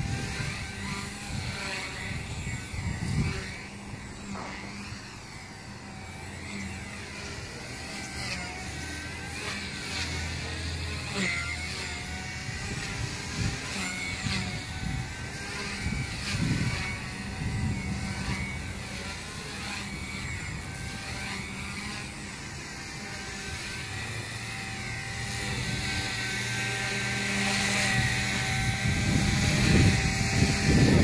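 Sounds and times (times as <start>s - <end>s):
wind buffeting microphone: 0.0s - 4.8s, 12.1s - 21.9s, 23.6s - 31.0s
rc helicopter rotor whine: 0.0s - 31.0s.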